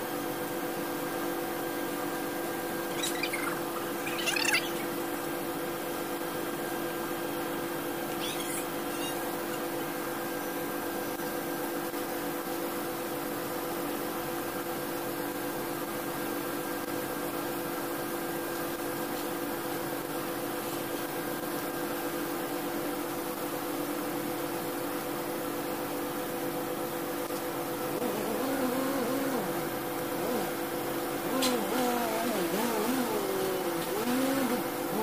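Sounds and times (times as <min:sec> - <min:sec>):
arc welder hissing and humming: 0:15.0 - 0:35.0.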